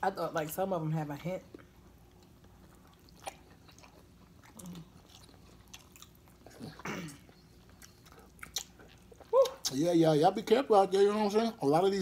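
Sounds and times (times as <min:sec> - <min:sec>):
chewing and wet smacking: 0:01.5 - 0:09.8.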